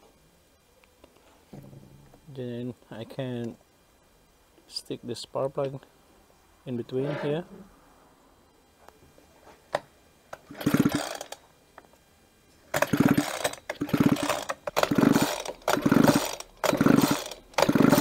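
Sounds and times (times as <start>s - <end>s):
recoil starter pulls: 10.4s - 11.4s, 12.7s - 18.0s
small engine spinning over: 10.5s - 11.4s, 12.8s - 18.0s.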